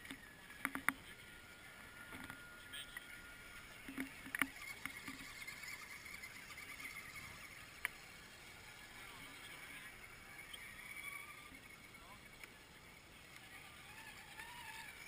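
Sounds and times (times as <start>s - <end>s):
sharp clicks and knocks: 0.0s - 1.0s, 3.8s - 5.3s
toy truck motor whine: 0.0s - 15.0s.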